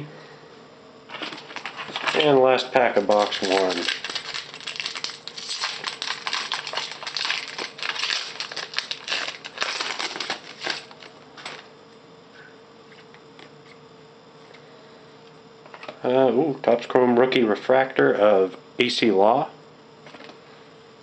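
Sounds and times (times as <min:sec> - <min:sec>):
foil wrapper crinkling and tearing: 0:01.1 - 0:02.4, 0:03.0 - 0:11.6.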